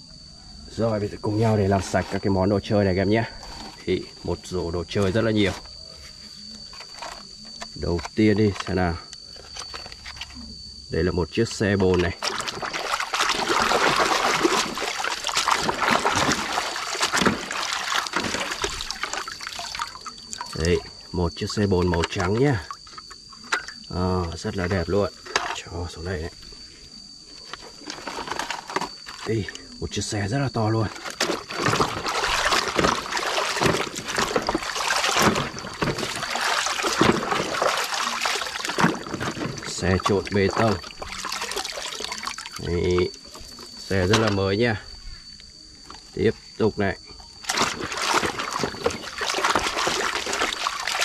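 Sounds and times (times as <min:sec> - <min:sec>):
water splashing in a basin: 0:00.7 - 0:05.7, 0:11.2 - 0:26.4, 0:27.8 - 0:44.5, 0:47.4 - 0:51.0
water dribbling: 0:11.6 - 0:26.3, 0:27.8 - 0:44.4, 0:47.3 - 0:51.0.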